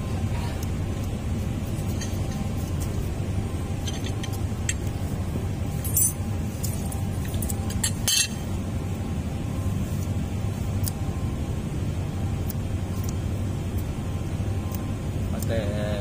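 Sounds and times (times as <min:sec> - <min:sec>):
metal pick clicking and scraping: 0:03.8 - 0:05.0.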